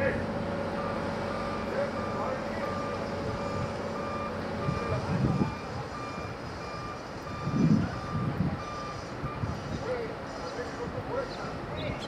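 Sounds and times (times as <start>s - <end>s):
heavy diesel equipment running: 0.0s - 12.0s
backup alarm beeping: 0.8s - 9.5s.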